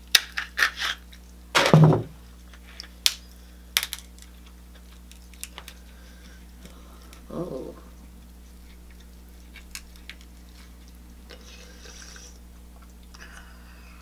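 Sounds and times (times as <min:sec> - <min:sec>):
shellfish shell cracking: 0:02.8 - 0:06.0, 0:07.9 - 0:11.0.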